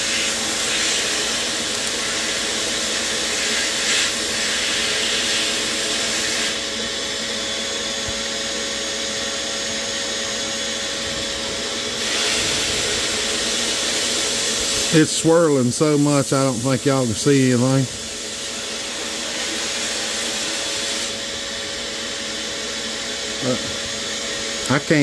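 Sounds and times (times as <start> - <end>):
compressed air blast gun hissing: 0.0 - 6.6, 12.0 - 21.2
dust extraction hum: 0.0 - 25.0.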